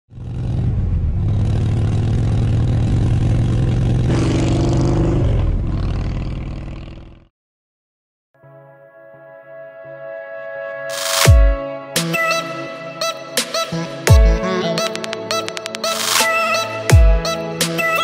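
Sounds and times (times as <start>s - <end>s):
motorcycle engine revving: 0.1s - 7.3s.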